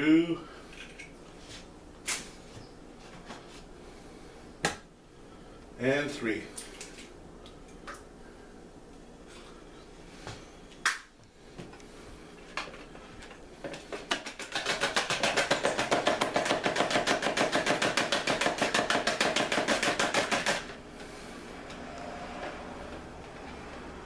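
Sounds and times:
fork beating eggs in plastic tub: 0:13.6 - 0:20.7.

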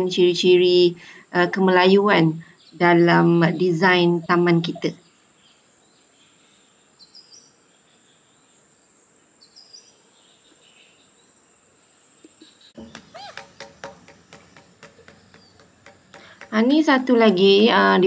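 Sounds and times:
bird chirps: 0:12.2 - 0:17.3
bird calls gliding in pitch: 0:12.4 - 0:16.6.

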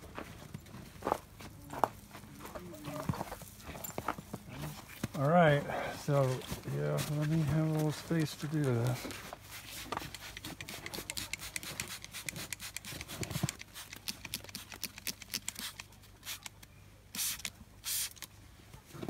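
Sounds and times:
hissing sprays: 0:09.4 - 0:16.5, 0:17.1 - 0:18.3
spray bottle clicks and spritzes: 0:10.1 - 0:16.6, 0:17.2 - 0:18.3.

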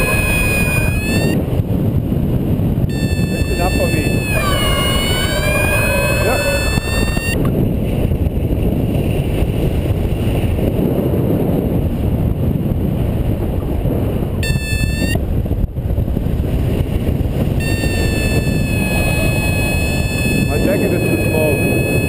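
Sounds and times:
high even tone: 0:00.0 - 0:01.4, 0:02.9 - 0:07.4, 0:14.4 - 0:15.2, 0:17.6 - 0:22.0
wind rushing over microphone: 0:00.0 - 0:22.0.

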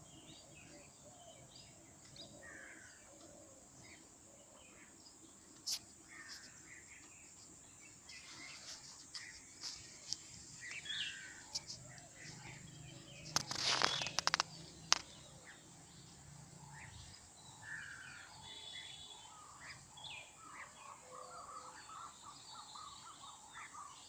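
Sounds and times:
distant bird chirps: 0:00.0 - 0:24.0
high-pitched hiss: 0:04.6 - 0:16.4
sharp clicks: 0:13.3 - 0:15.1.

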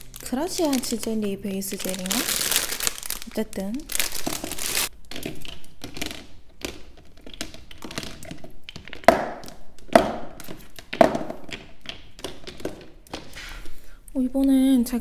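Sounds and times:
bottles tapping in plastic basket: 0:05.1 - 0:13.4.

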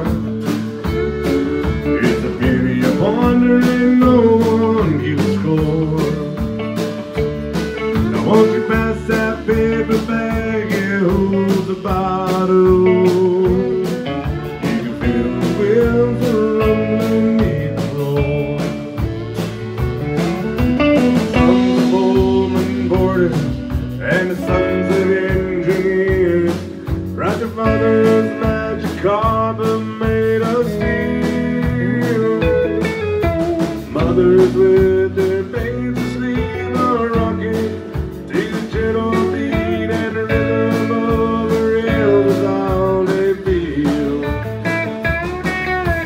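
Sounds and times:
acoustic guitar: 0:00.0 - 0:46.0
drums playing a steady beat: 0:00.0 - 0:46.0
electric bass: 0:00.0 - 0:46.0.

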